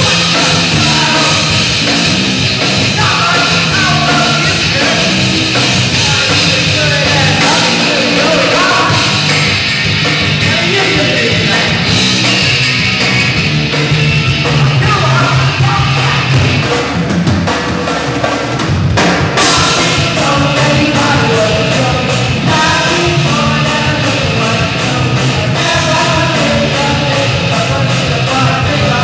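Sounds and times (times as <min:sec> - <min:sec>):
person singing lead vocal: 0:00.0 - 0:02.0, 0:02.7 - 0:09.4, 0:10.4 - 0:12.0, 0:14.7 - 0:16.6, 0:19.4 - 0:29.0
bass guitar: 0:00.0 - 0:29.0
drum kit: 0:00.0 - 0:29.0
electric guitar: 0:00.0 - 0:29.0.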